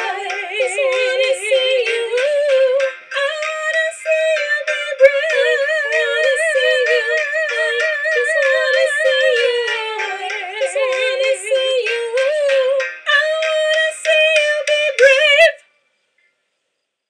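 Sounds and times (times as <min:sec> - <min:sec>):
rhythmic accompaniment: 0:00.0 - 0:15.5
person singing wordless notes: 0:00.0 - 0:15.6.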